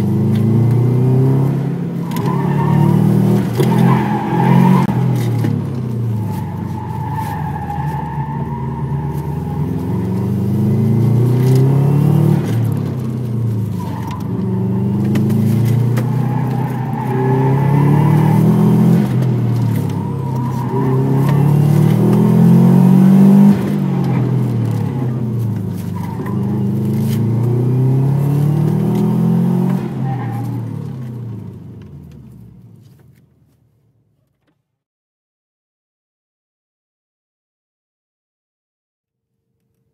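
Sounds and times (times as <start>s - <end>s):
car engine accelerating: 0.0s - 33.2s.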